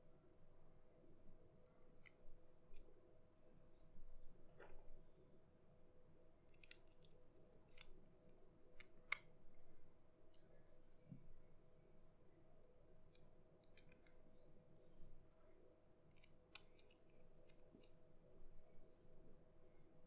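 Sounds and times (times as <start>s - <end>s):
small screwdriver clicking on screws: 6.5s - 7.1s, 13.1s - 14.2s, 16.1s - 18.0s.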